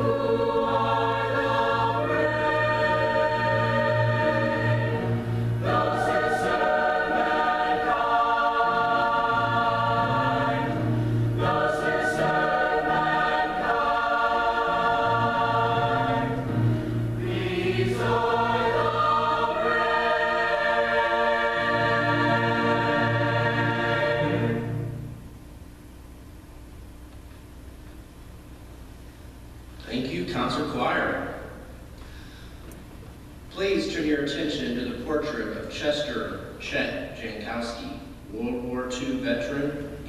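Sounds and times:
choir singing held chords: 0.0 - 25.4.

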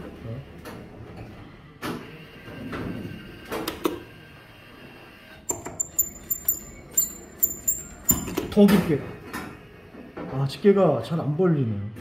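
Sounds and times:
short high-pitched beeps: 5.5 - 8.4.

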